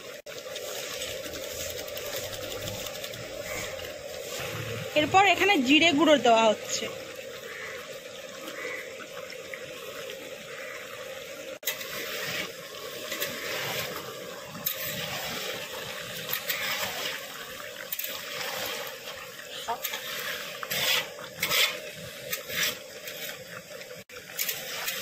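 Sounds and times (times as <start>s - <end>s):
chicken sizzling in a pan: 8.5s - 8.8s
metal spatula scraping: 19.7s - 23.4s.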